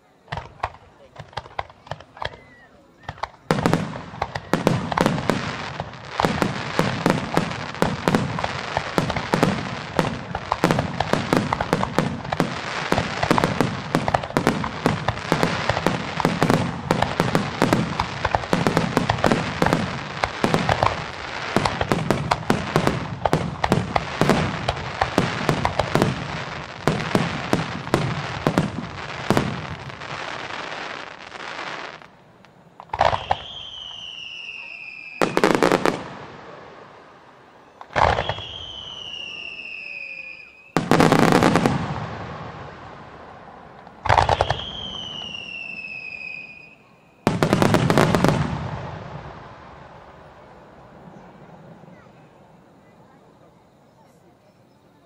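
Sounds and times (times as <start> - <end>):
fireworks bangs: 0.0 - 53.3.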